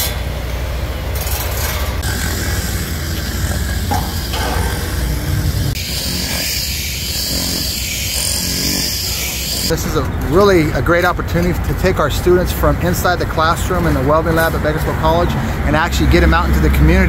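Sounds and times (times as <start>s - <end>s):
low engine rumble: 0.0s - 6.4s.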